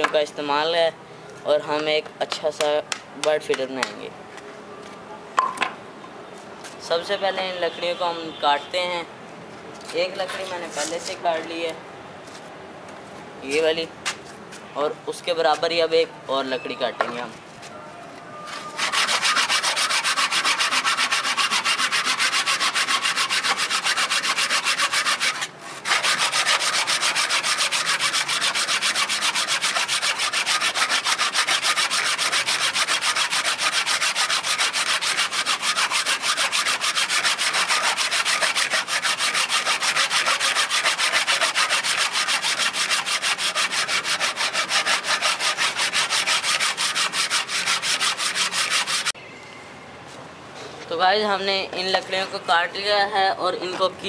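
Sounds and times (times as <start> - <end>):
hand saw cutting wood: 18.6 - 49.2.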